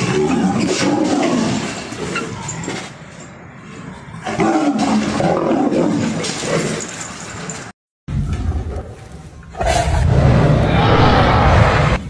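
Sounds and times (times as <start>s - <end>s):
big cats growling and roaring: 0.0s - 3.0s, 3.6s - 7.0s, 8.3s - 12.0s.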